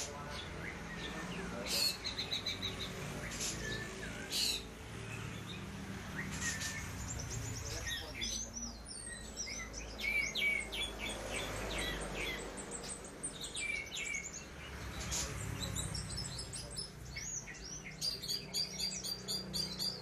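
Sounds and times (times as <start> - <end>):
songbird chirping and whistling: 6.1 - 20.0.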